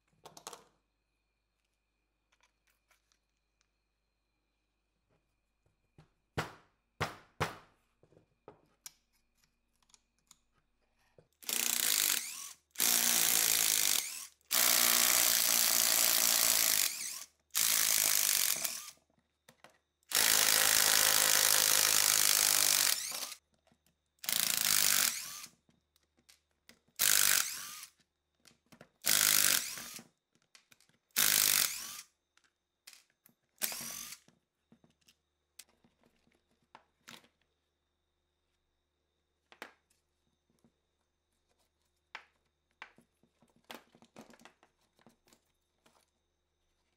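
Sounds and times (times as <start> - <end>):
power drill: 11.4 - 19.0, 20.1 - 23.4, 24.2 - 25.5, 27.0 - 27.9, 29.0 - 30.0, 31.2 - 32.1, 33.6 - 34.2.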